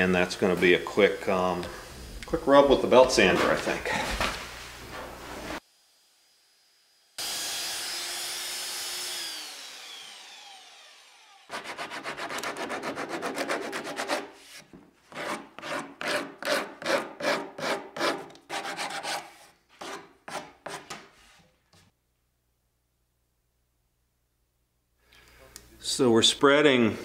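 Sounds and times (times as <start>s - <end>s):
belt sander running: 6.0s - 12.3s
sanding block rubbing wood: 11.5s - 21.0s.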